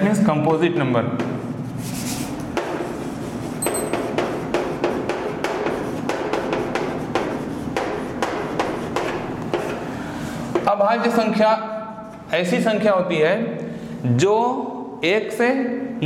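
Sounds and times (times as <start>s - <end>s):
chalk tapping on chalkboard: 2.0s - 9.9s, 10.5s - 10.8s.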